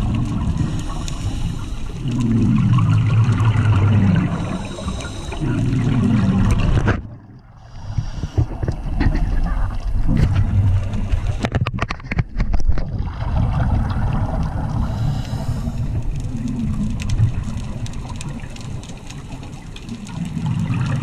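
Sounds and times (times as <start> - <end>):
bubbles gurgling underwater: 0.0 - 1.4, 2.0 - 21.0
underwater regulator breathing: 0.4 - 2.7, 4.2 - 6.4, 7.6 - 9.4, 14.7 - 16.3.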